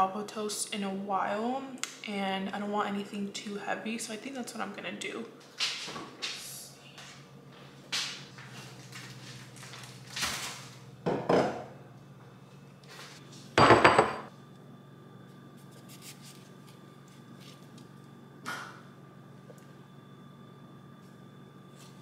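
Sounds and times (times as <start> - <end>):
bowl knocking on stone countertop: 13.6 - 14.3.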